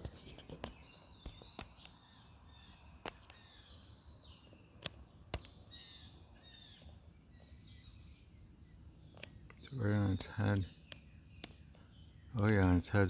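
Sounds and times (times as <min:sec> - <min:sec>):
songbirds chirping: 0:00.0 - 0:13.0.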